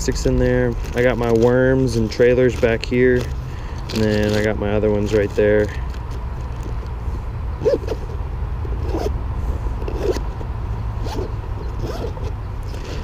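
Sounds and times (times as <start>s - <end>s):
steady low rumble: 0.0s - 13.0s
zippers pulled open and shut: 3.8s - 4.5s, 7.6s - 8.1s, 8.7s - 9.1s, 9.8s - 10.4s, 11.0s - 13.0s.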